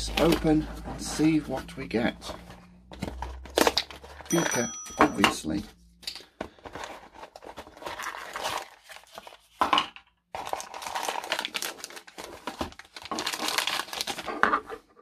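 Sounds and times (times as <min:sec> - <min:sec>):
packaging crinkling and rustling: 0:02.2 - 0:04.4, 0:06.1 - 0:09.7, 0:10.3 - 0:14.8.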